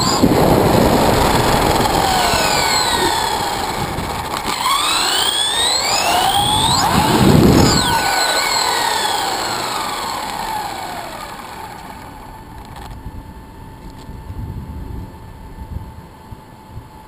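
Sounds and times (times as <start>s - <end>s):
electric motor whining: 0.0s - 13.0s.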